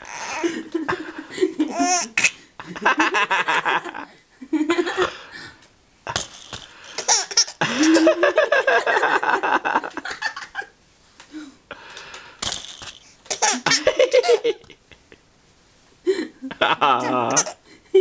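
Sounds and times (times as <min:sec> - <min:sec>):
baby laughing: 0:01.6 - 0:02.3, 0:07.0 - 0:08.2, 0:13.3 - 0:14.6, 0:16.6 - 0:17.6.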